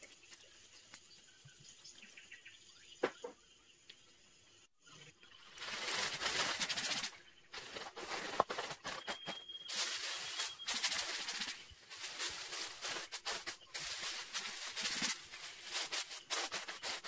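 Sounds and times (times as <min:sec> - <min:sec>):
aluminium foil crinkling: 0:05.4 - 0:17.0
baking parchment rustling: 0:05.4 - 0:17.0.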